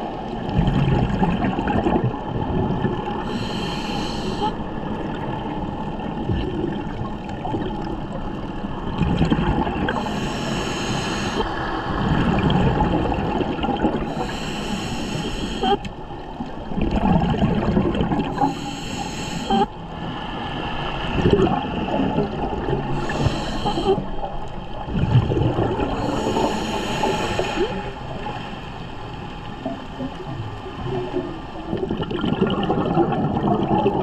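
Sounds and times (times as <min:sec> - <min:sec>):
exhaled bubbles gushing: 0:00.0 - 0:03.4, 0:05.0 - 0:08.2, 0:08.8 - 0:10.1, 0:11.9 - 0:14.3, 0:16.6 - 0:18.5, 0:21.0 - 0:28.3, 0:29.6 - 0:34.0
underwater rumble: 0:00.0 - 0:34.0
regulator hissing inhale: 0:03.2 - 0:04.6, 0:09.9 - 0:11.6, 0:14.0 - 0:15.8, 0:18.3 - 0:19.7, 0:22.9 - 0:24.2, 0:25.9 - 0:28.0.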